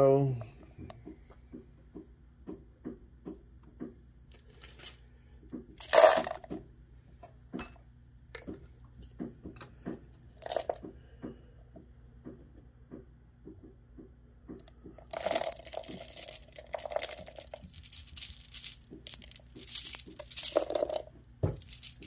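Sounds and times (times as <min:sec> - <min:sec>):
charcoal shaken through wire strainer: 0:05.8 - 0:06.4, 0:15.1 - 0:22.0.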